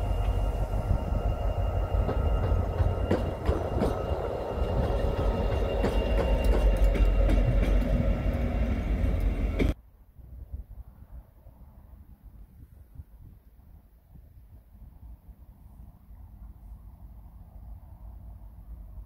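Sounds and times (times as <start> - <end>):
deep locomotive engine rumble: 0.0 - 9.8
steady high tone: 0.0 - 9.8.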